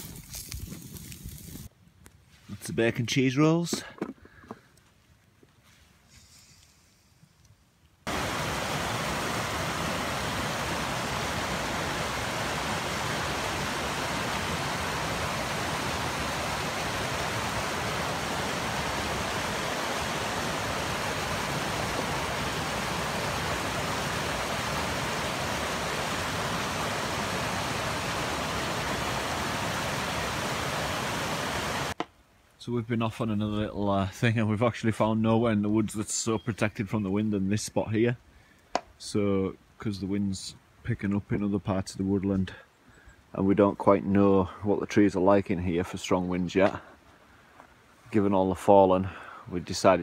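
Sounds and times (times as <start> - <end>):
river rushing over rapids: 8.1 - 32.0.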